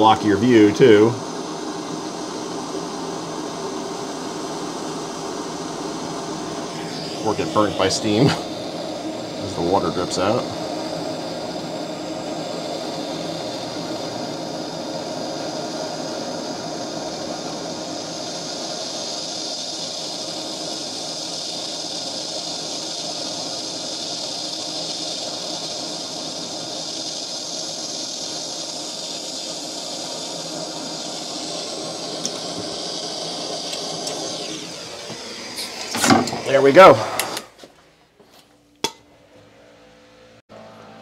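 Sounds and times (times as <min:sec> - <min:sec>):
gas torch hissing: 0:00.0 - 0:37.7.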